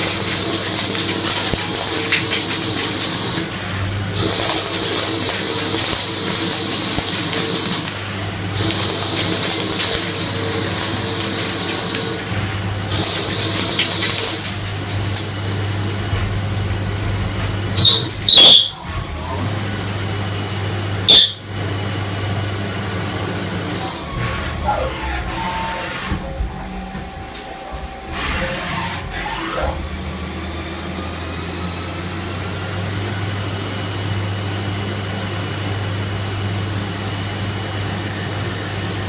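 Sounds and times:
lathe spindle humming: 0.0s - 20.8s, 23.7s - 32.7s
cutting tool hissing whine: 23.7s - 32.6s.

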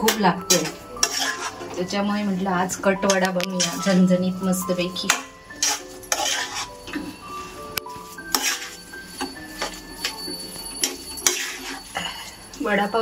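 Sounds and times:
spoon clinking against metal pan: 0.0s - 1.6s, 5.0s - 7.2s, 7.8s - 13.0s.

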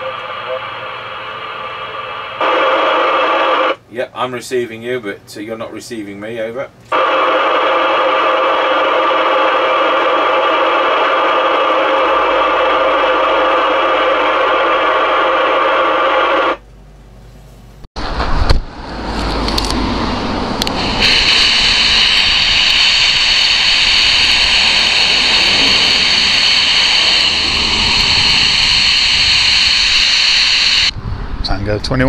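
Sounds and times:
loud walkie-talkie hiss: 0.0s - 3.8s, 6.9s - 16.6s, 20.6s - 30.9s
radio speaker hiss: 0.0s - 3.8s, 6.9s - 16.6s, 20.6s - 30.9s
wind: 18.0s - 28.6s, 30.9s - 32.0s
traffic rumble: 18.0s - 29.8s.

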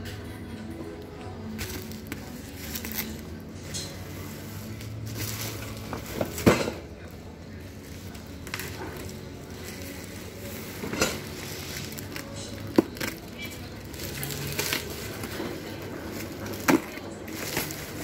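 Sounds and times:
bubble wrap crinkling: 1.4s - 3.5s, 7.5s - 18.0s.

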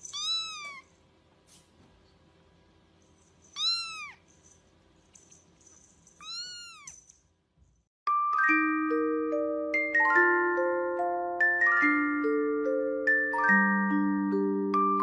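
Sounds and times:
kitten meowing: 0.1s - 0.9s, 3.6s - 4.2s, 6.2s - 7.0s.

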